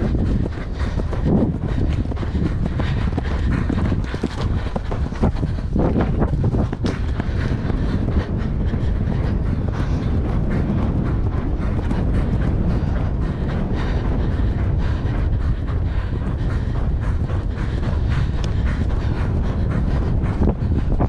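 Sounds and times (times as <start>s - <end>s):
horse hoofbeats on grass: 0.0s - 21.0s
wind rumble on microphone: 0.0s - 21.0s.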